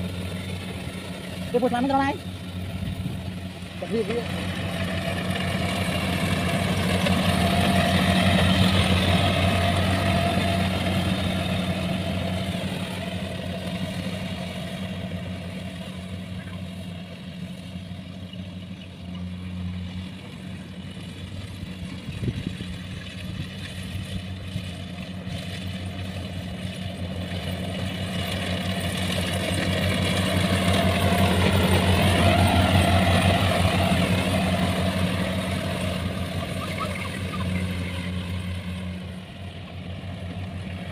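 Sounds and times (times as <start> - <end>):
combine harvester engine humming: 0.0 - 40.9.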